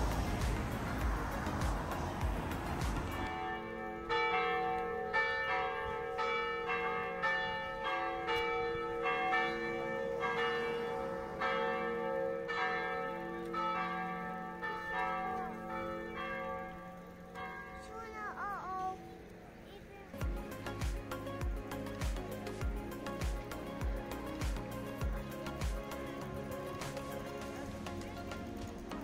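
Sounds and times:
church bells ringing in a peal: 0:00.0 - 0:19.3.

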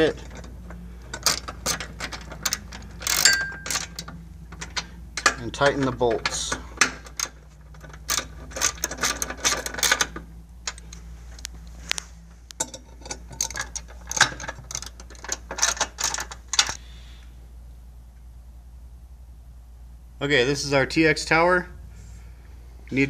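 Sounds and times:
socket ratchet clicking: 0:01.1 - 0:05.5.

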